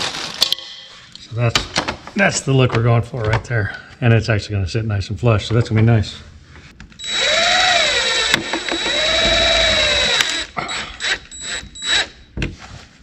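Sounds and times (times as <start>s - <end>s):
cordless drill driving screws: 7.0s - 12.2s.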